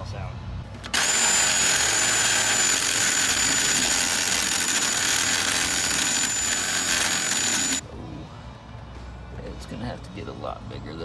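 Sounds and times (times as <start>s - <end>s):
cordless drill whining: 0.8s - 7.8s.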